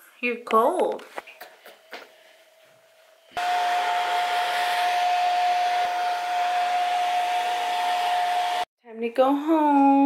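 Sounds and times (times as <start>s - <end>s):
hair dryer blowing with whine: 3.3s - 8.7s.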